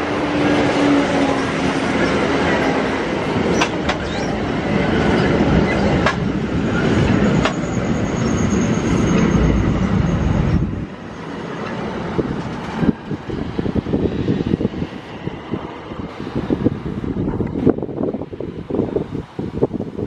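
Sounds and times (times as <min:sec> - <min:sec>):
train wheels rumbling on rail: 0:00.0 - 0:20.0
sharp clicks of train wheels: 0:00.6 - 0:07.8, 0:11.2 - 0:13.3
high wheel squeal: 0:03.4 - 0:11.9.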